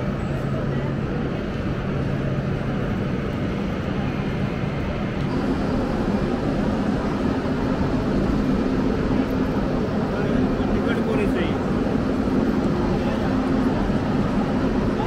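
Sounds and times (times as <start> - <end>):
railway station hall rumble: 0.0 - 15.0.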